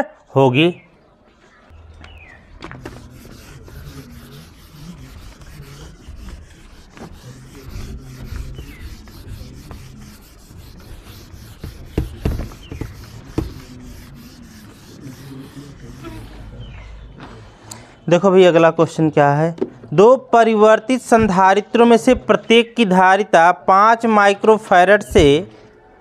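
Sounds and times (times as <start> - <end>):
duster rubbing on whiteboard: 2.6 - 16.6.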